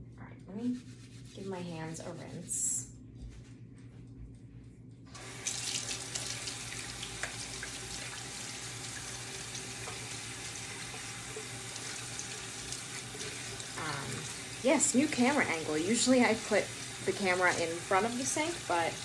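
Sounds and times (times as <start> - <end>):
kitchen faucet turned on: 5.2 - 19.0
water running into sink: 5.2 - 19.0.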